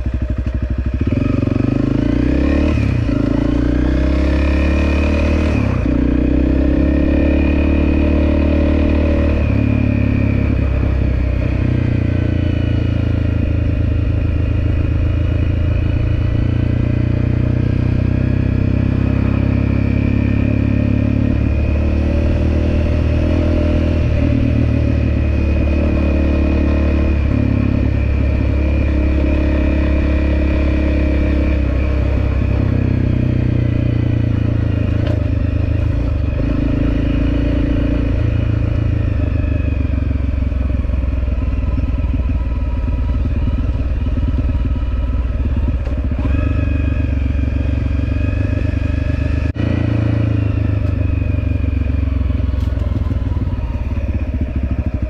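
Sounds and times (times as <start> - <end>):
dirt bike engine revving: 1.0 - 38.9.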